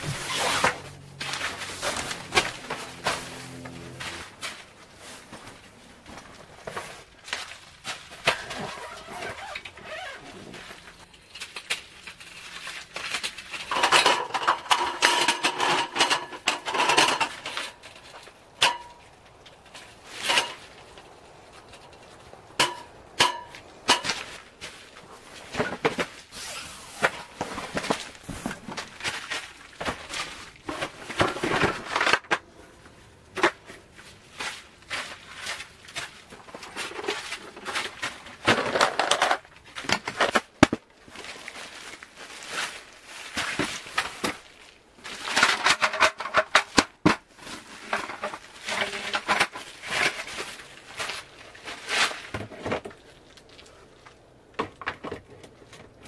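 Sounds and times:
shuffling steps on tarp: 0.0 - 11.1, 33.7 - 38.4, 41.0 - 45.3.

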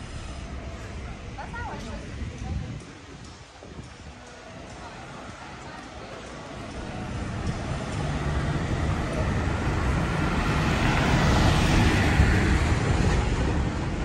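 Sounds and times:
truck driving past on cobblestones: 4.8 - 14.0.

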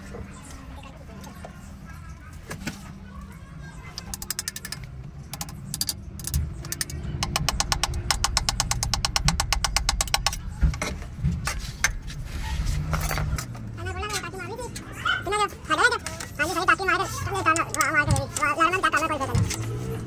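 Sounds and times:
rapid mechanical clicking: 3.9 - 10.9.

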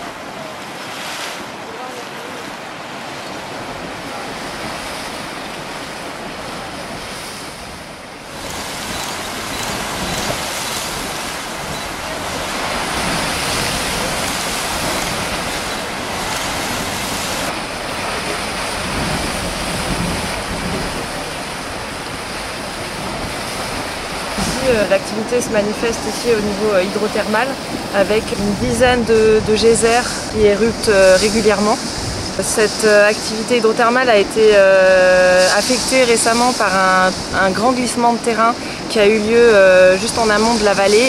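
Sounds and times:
geyser venting steam: 0.0 - 41.0.

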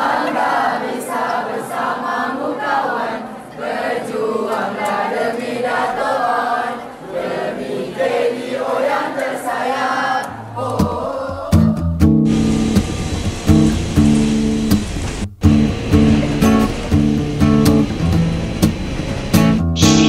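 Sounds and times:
crowd chanting in unison: 0.0 - 11.8
music: 10.2 - 20.0.

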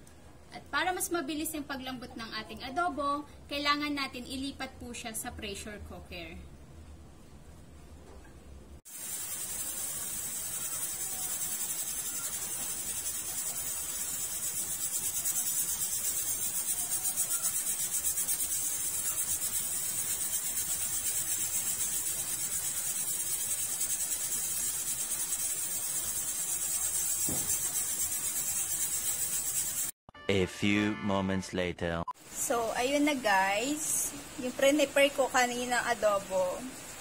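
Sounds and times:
pressure cooker steam hissing: 8.9 - 30.0.

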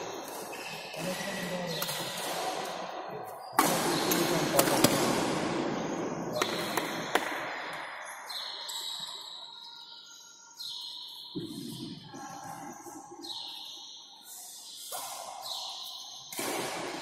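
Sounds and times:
racket hitting shuttlecock: 3.6 - 5.4, 14.9 - 17.0
shuttlecock striking court: 16.3 - 17.0.

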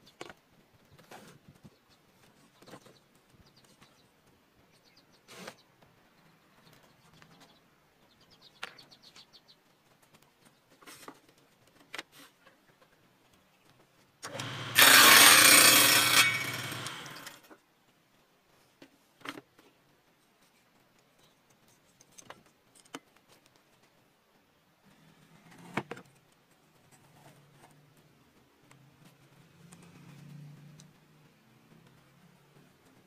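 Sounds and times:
table saw cutting wood: 14.2 - 17.4.

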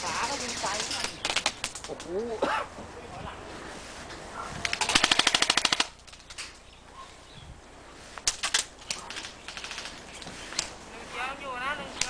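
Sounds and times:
airsoft rifle firing bursts: 0.0 - 1.9, 4.7 - 6.0, 8.4 - 10.1.

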